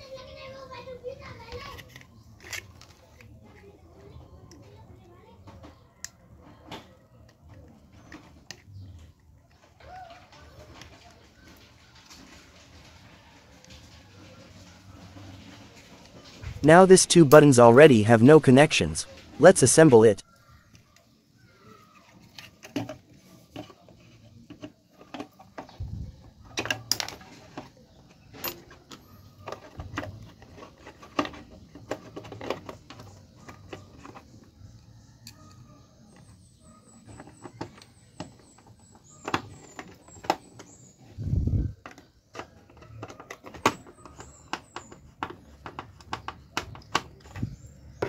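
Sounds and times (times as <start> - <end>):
plastic clicks and knocks: 41.8 - 48.0.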